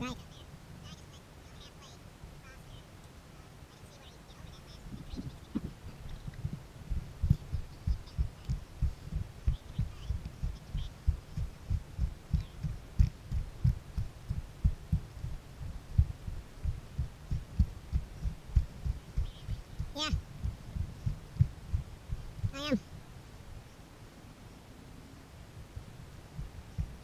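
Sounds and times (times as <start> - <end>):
footsteps on a dirt trail: 5.0 - 22.6.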